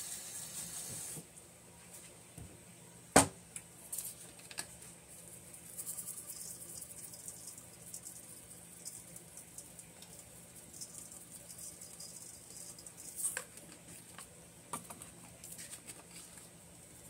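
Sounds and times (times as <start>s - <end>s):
granules pattering from a shaker: 3.8s - 14.1s.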